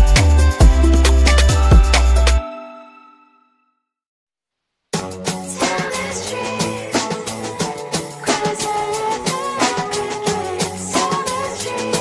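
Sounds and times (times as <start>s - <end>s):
music with steady drum beat: 0.0s - 2.4s, 5.0s - 12.0s.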